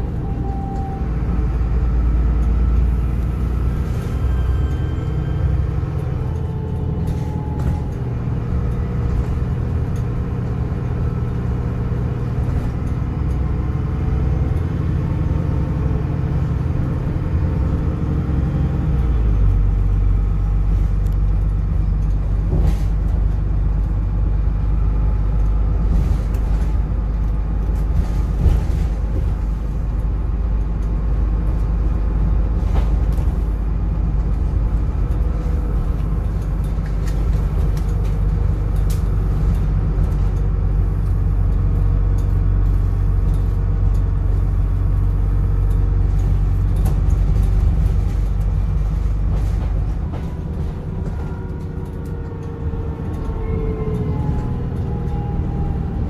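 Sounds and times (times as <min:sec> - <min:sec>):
bus diesel engine drone: 0:00.0 - 0:56.0
bus body knocks and rattles: 0:25.6 - 0:29.7, 0:46.2 - 0:51.4.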